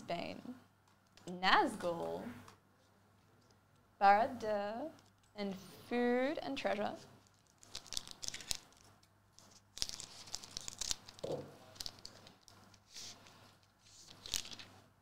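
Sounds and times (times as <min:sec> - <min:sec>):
foil wrapper crinkling and tearing: 0:07.2 - 0:13.2, 0:14.1 - 0:14.7.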